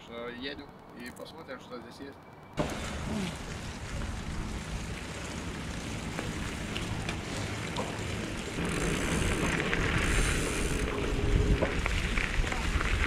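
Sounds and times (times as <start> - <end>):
bike clicks and rattles: 0.4 - 13.0
bike tyres rumbling on dirt: 2.6 - 13.0
wind rushing over microphone: 8.6 - 13.0.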